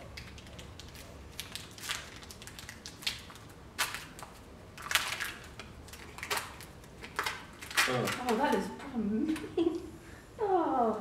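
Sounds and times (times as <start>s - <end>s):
candy wrapper crackling: 0.0s - 8.6s.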